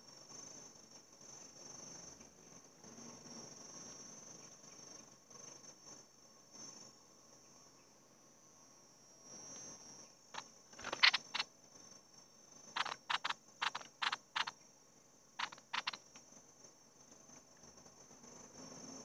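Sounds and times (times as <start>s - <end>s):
high-pitched insect drone: 3.3s - 14.7s, 15.3s - 19.0s.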